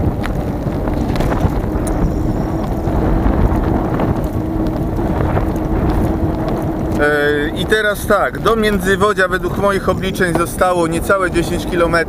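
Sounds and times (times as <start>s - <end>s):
bike knocks and rattles: 0.0s - 7.4s
steady hum: 0.0s - 12.0s
wind buffeting microphone: 0.0s - 12.0s.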